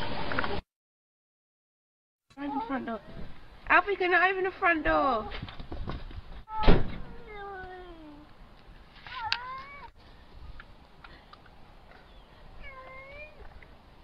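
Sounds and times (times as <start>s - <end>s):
cat meowing: 6.5s - 8.2s, 9.1s - 9.9s, 12.6s - 13.4s.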